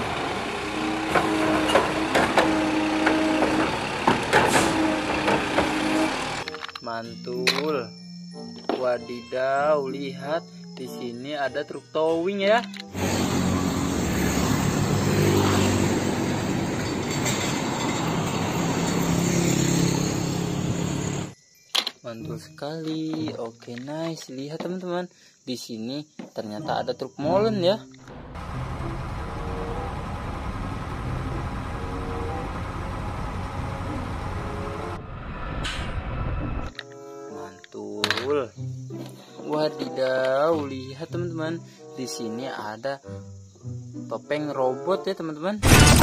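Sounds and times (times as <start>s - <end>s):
truck engine humming: 0.0s - 6.5s, 13.0s - 21.4s, 28.0s - 36.7s
tyre and road noise: 0.0s - 6.7s, 12.9s - 21.4s, 28.0s - 36.9s.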